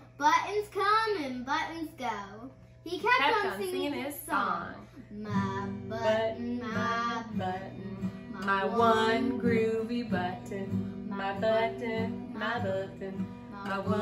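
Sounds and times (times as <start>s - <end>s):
acoustic guitar strumming: 2.9s - 14.0s
woman singing children's song: 3.2s - 14.0s.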